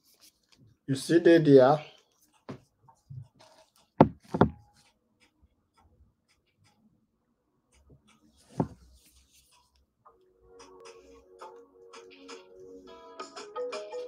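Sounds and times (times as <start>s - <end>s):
sharp knocks: 4.0s - 4.6s.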